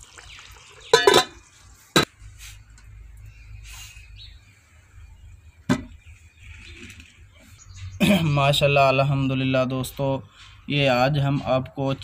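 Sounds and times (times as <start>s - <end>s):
metal cooking pot clanking: 0.9s - 1.4s.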